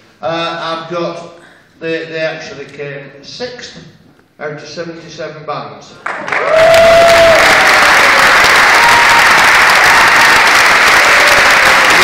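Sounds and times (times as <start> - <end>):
audience applauding: 6.0 - 12.0.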